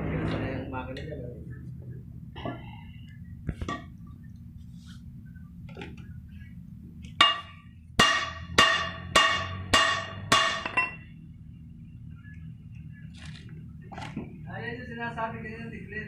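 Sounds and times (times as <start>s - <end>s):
hammer blows ringing on steel: 7.2s - 11.0s.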